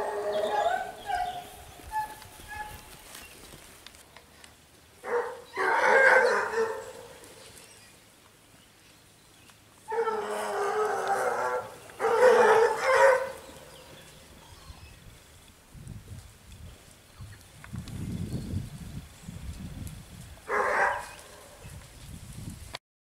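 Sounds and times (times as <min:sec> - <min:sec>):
hounds baying: 0:00.0 - 0:02.8, 0:05.0 - 0:07.3, 0:09.9 - 0:14.8, 0:20.4 - 0:21.6.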